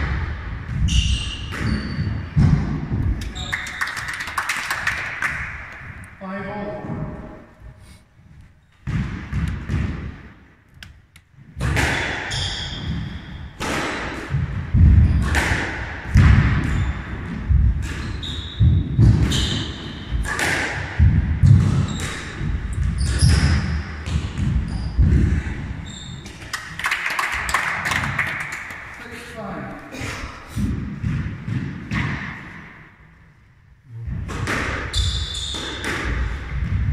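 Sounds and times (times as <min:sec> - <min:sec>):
squash ball hit by rackets: 0:00.0 - 0:03.4, 0:08.8 - 0:10.5, 0:11.5 - 0:26.5, 0:30.6 - 0:32.9, 0:34.0 - 0:36.9.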